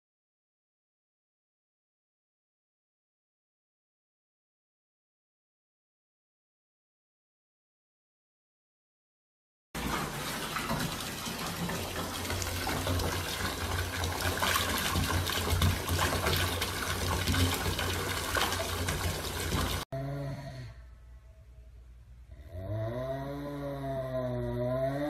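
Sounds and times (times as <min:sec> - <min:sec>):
water pouring from bathtub tap: 0:09.8 - 0:19.9.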